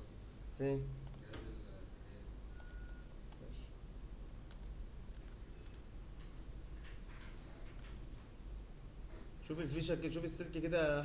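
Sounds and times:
low room hum: 0.0s - 11.0s
computer mouse clicking: 1.0s - 1.4s, 2.6s - 3.5s, 4.5s - 5.9s, 7.2s - 8.3s.

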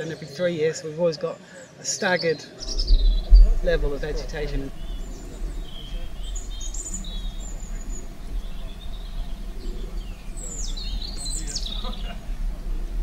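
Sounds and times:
birds chirping: 0.0s - 13.0s
steady low rumble: 2.6s - 13.0s.

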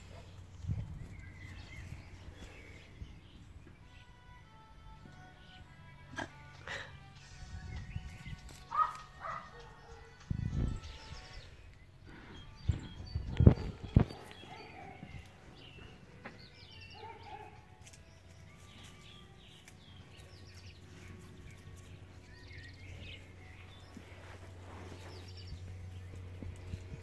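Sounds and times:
small birds chirping: 0.0s - 5.8s, 7.2s - 27.0s
steady low hum: 17.5s - 27.0s.

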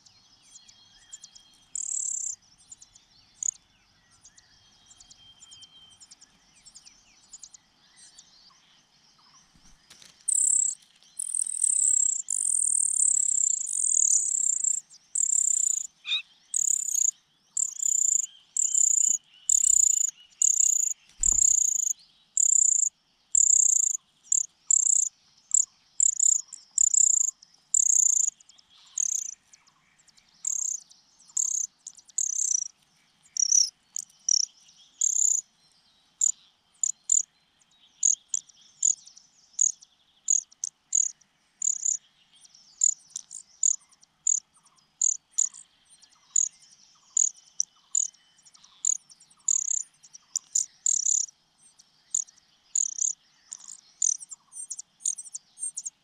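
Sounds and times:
nestlings cheeping: 1.8s - 2.4s, 10.0s - 28.3s, 29.0s - 29.4s, 31.4s - 32.7s, 33.4s - 35.4s.

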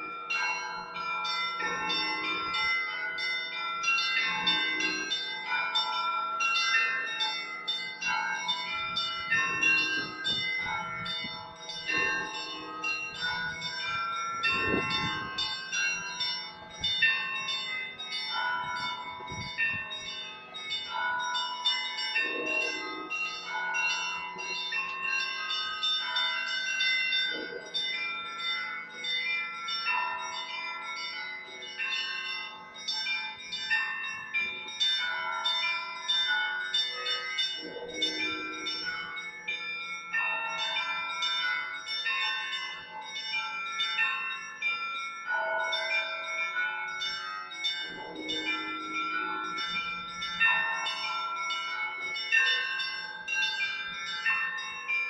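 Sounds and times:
small church bells pealing: 0.0s - 55.0s
deep bell strokes: 7.7s - 20.3s, 47.7s - 52.5s.

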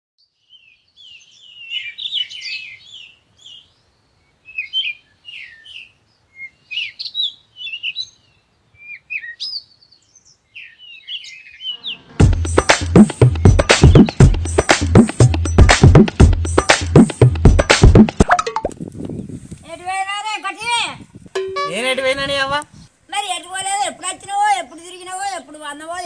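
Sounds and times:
small birds chirping: 0.2s - 14.7s
loud music with heavy drum beat: 12.2s - 18.3s.

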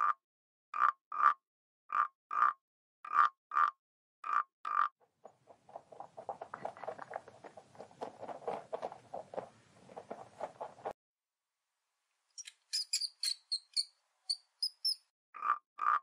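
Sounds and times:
frog croaking: 0.8s - 4.9s, 15.4s - 16.0s
rabbit chewing grass: 5.1s - 10.9s.

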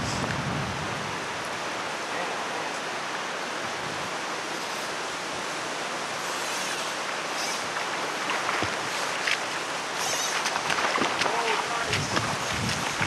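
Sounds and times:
river rushing over gravel: 7.0s - 13.0s.

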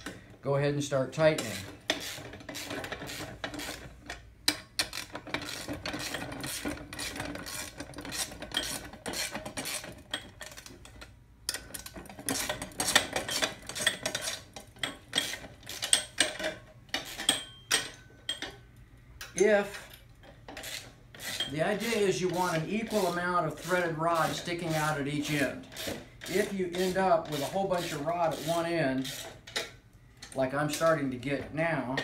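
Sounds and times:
wrench clinking on metal rods: 11.5s - 18.6s.

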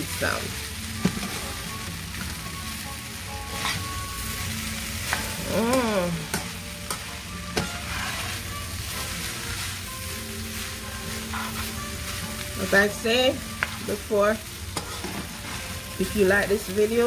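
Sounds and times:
rice sizzling in a pan: 0.0s - 17.0s
utensil scraping and clicking on pan: 6.3s - 9.1s, 11.0s - 11.8s, 14.7s - 15.7s.

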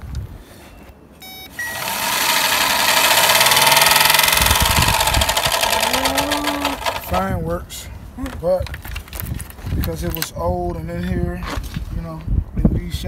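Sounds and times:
short beep: 0.7s - 1.8s
electric fan motor whirring: 1.5s - 7.4s.

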